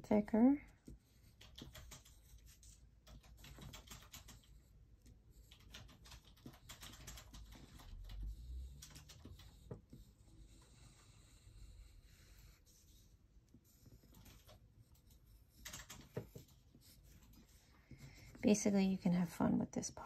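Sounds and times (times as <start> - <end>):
pencil scratching on paper: 0.8 - 3.5, 6.4 - 18.8.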